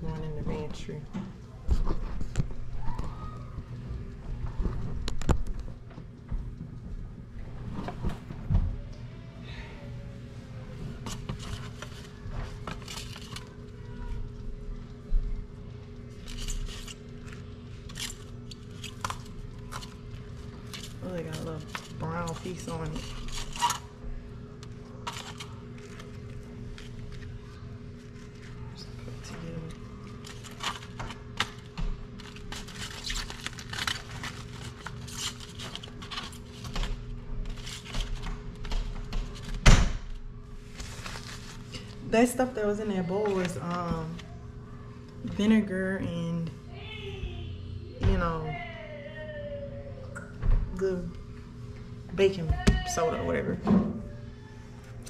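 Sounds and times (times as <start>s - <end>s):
faint low hum: 0.0s - 55.0s
lettuce leaves tearing: 30.0s - 36.8s.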